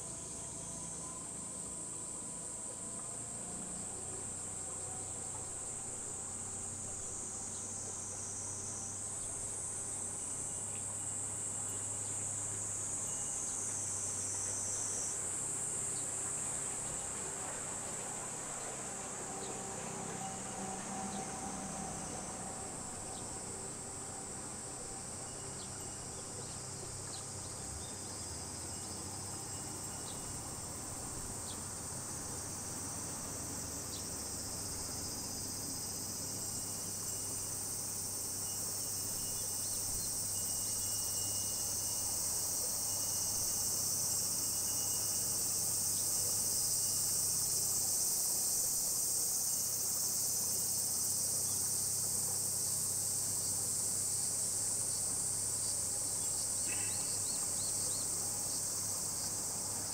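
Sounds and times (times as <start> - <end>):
high insect chorus buzzing: 0.0 - 59.9.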